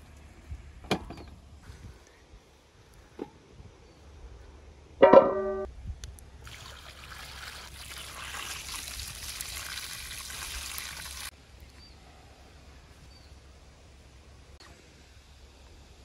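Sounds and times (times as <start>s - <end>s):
water pouring onto metal tray: 6.4s - 11.3s.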